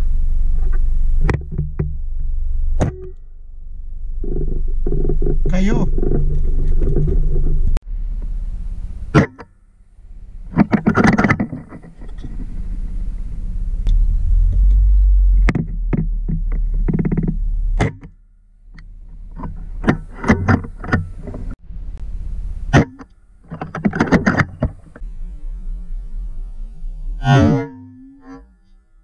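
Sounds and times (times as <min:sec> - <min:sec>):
low steady rumble: 0:00.0 - 0:29.0
handling knocks and clicks: 0:04.2 - 0:07.8, 0:10.5 - 0:12.5, 0:15.5 - 0:21.6, 0:22.8 - 0:25.0
short pitched sound: 0:12.2 - 0:17.8, 0:24.5 - 0:29.0.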